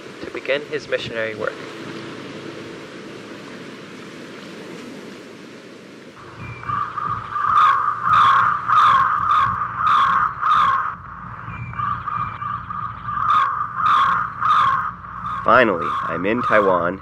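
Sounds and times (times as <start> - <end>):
birds calling: 6.2 - 17.0.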